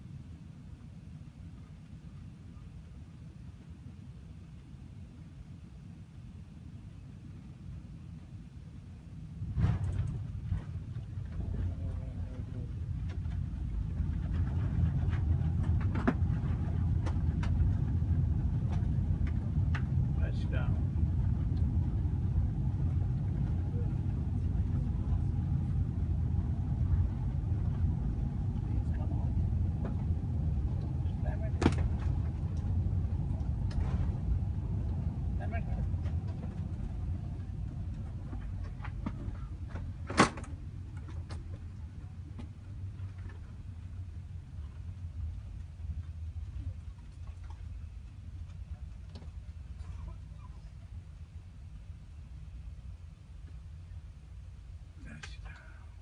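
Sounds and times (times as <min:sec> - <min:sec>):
aircraft cabin rumble: 0:00.0 - 0:56.0.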